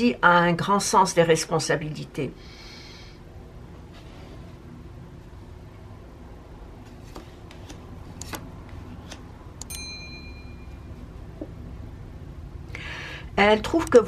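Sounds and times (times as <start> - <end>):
low room hum: 0.0 - 14.0
bright ding: 9.6 - 10.9.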